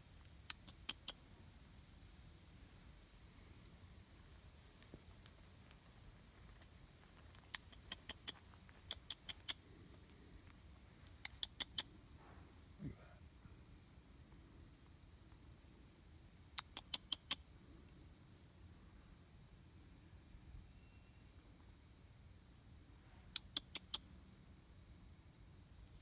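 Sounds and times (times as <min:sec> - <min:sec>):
sharp clicks: 0:00.4 - 0:01.2, 0:07.2 - 0:09.7, 0:11.1 - 0:11.9, 0:16.5 - 0:17.4.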